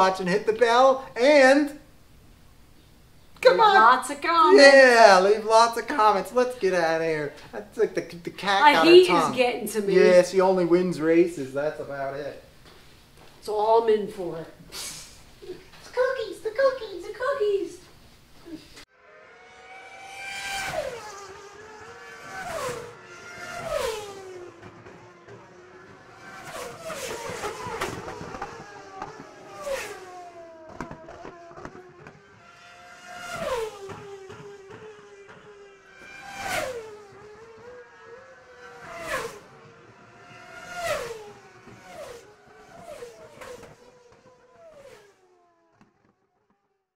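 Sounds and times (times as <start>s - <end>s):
short hissing spikes: 14.6s - 15.3s
racing car motors whining: 18.8s - 46.7s.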